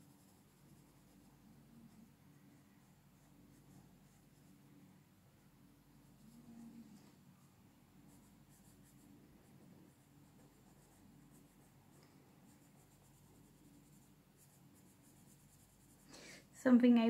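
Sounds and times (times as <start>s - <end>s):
pencil scratching on paper: 0.0s - 4.6s, 8.0s - 16.1s.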